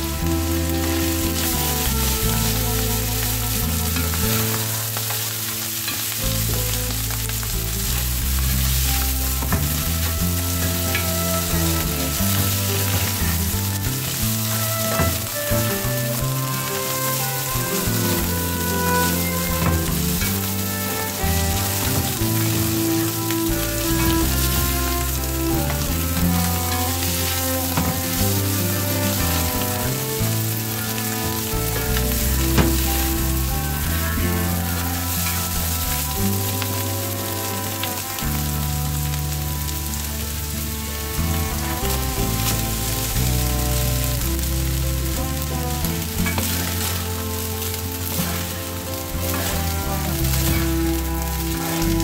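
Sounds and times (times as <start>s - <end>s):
background music with held notes: 0.0s - 52.0s
food sizzling in a frying pan: 0.0s - 52.0s
spatula stirring in a pan: 47.6s - 50.7s.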